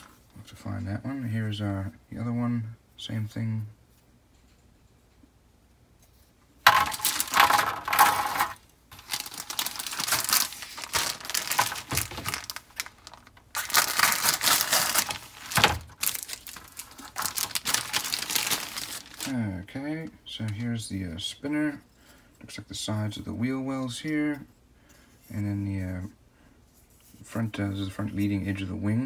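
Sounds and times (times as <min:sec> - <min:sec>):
plastic bags crinkling: 0:06.7 - 0:19.4.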